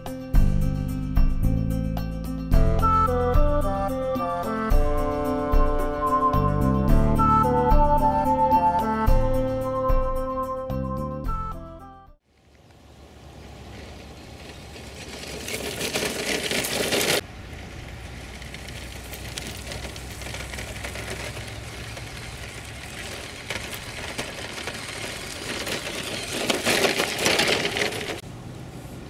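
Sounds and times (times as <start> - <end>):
wheels over gravel: 12.2 - 29.0
toy truck electric motor: 14.8 - 17.2, 18.2 - 28.2.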